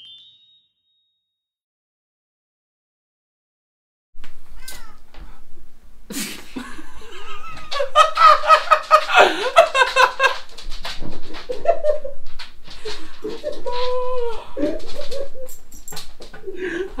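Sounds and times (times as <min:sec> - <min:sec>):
man and woman laughing: 0:06.1 - 0:10.5, 0:11.4 - 0:12.2, 0:12.8 - 0:15.6, 0:16.4 - 0:17.0.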